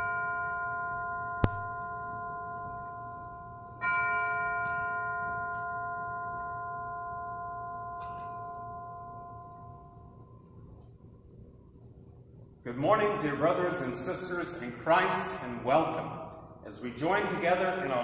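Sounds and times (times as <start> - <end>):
bell ringing: 0.0 - 10.6.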